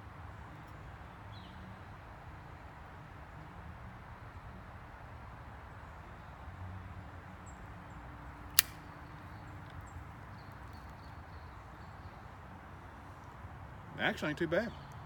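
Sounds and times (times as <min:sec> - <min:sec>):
faint background noise: 0:00.0 - 0:15.0
lighter lid snapping shut: 0:08.6 - 0:08.8.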